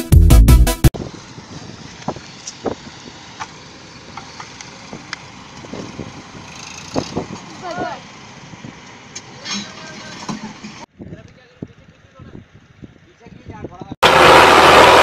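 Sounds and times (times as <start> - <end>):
loud music: 0.0 - 0.9
heavy machinery engine noise: 1.0 - 10.9, 14.0 - 15.0.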